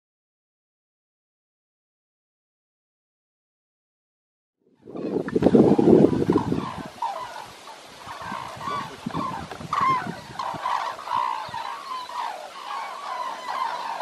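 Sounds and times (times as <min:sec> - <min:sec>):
cranes calling: 0:04.8 - 0:14.0.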